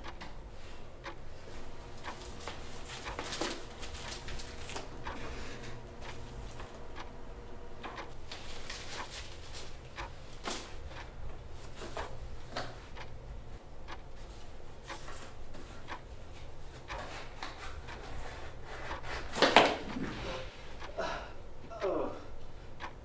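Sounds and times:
papers rustling: 1.6 - 6.8, 8.3 - 10.8.

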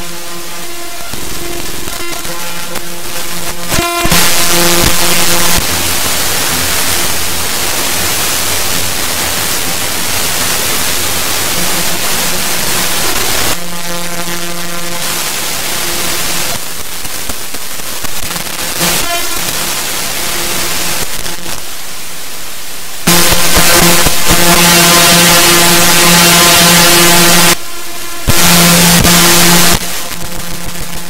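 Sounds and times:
sustained chord: 0.0 - 16.6, 23.1 - 30.6
harsh static-like electronic noise: 0.0 - 31.0.

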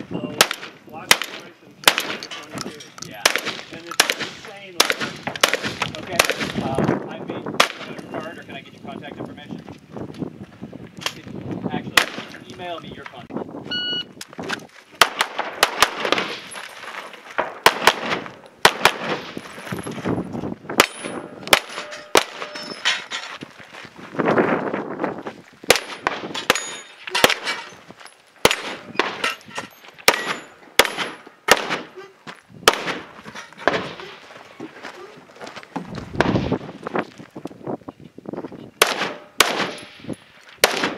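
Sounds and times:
metallic ring of steel targets: 20.8 - 23.3, 25.8 - 27.8, 28.5 - 31.2
handgun shots: 30.1 - 31.9, 38.8 - 39.9.

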